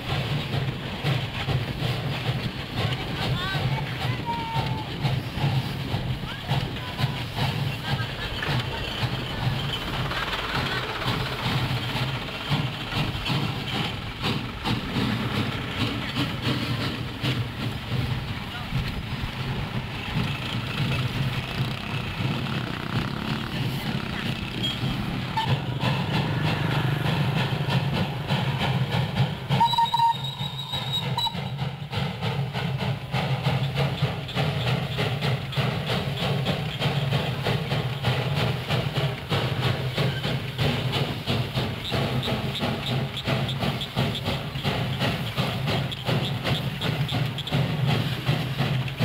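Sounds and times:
wagons rattling: 0.0s - 27.7s
steam locomotive exhaust beats: 0.0s - 49.0s.

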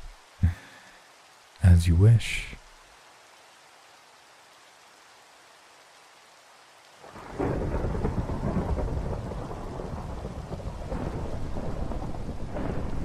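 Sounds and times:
rain hissing: 0.0s - 13.0s
rolling thunder rumble: 7.1s - 13.0s.

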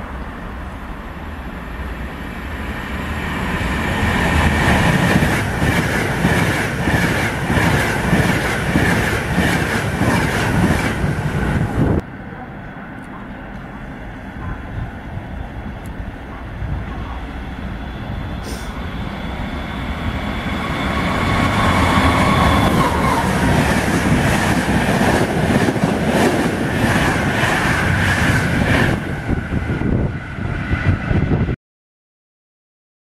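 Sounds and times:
train rushing past: 0.0s - 31.6s
high whine: 11.3s - 25.4s.

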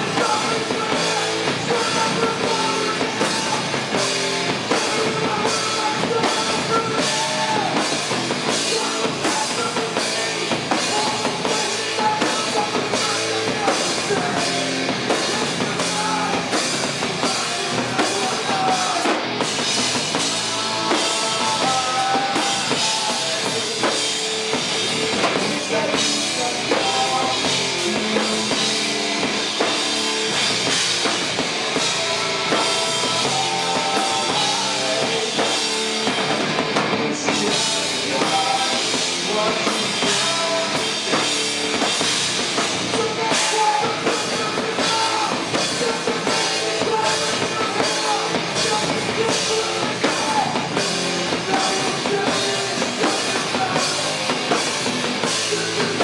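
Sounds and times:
distorted electric guitars: 0.0s - 56.0s
drum kit with bass drum: 0.0s - 56.0s.

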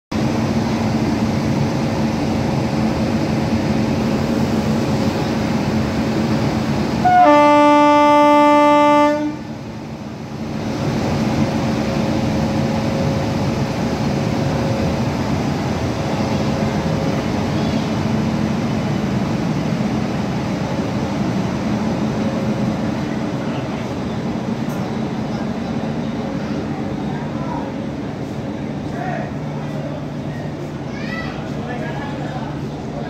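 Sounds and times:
electric locomotive humming: 0.1s - 33.0s
locomotive horn: 7.0s - 9.5s.

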